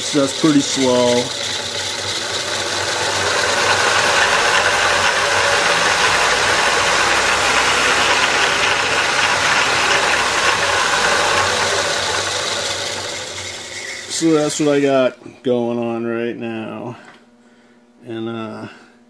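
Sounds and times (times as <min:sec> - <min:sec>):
band saw running: 0:00.0 - 0:15.2.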